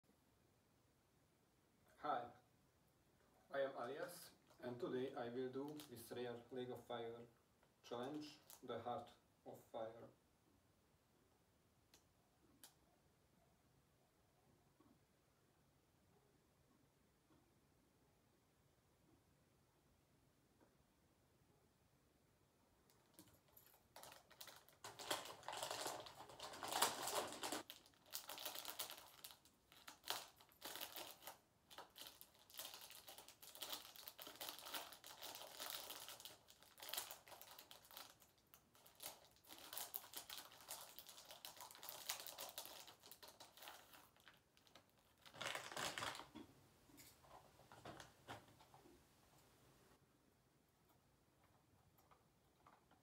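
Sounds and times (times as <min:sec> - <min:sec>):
cellophane bag crinkling: 0:05.6 - 0:05.9, 0:22.9 - 0:46.4.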